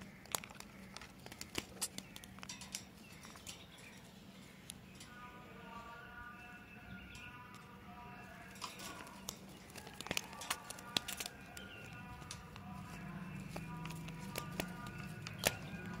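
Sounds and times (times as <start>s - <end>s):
background music held tones: 3.4s - 16.0s.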